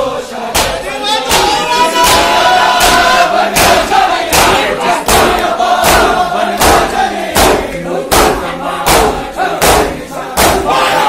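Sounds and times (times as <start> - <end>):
men chanting together: 0.0 - 11.0
men beating chests in unison: 0.5 - 11.0.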